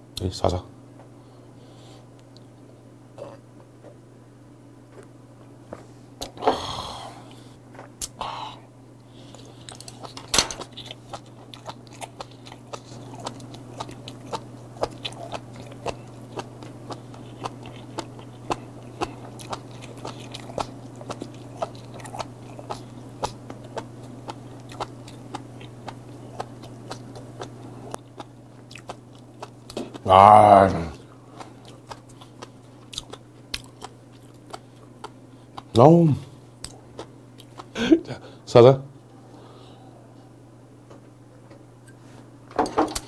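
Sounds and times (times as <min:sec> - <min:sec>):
crisp crunchy chewing: 0:09.2 - 0:30.1, 0:31.3 - 0:35.7
breathy sound: 0:39.2 - 0:40.3.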